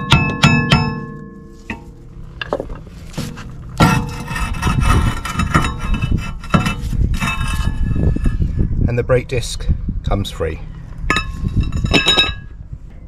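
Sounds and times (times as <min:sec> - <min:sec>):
metal knocks: 0:00.0 - 0:07.4, 0:11.1 - 0:12.6
brake disc scraping on rust: 0:00.9 - 0:08.6, 0:11.0 - 0:12.5.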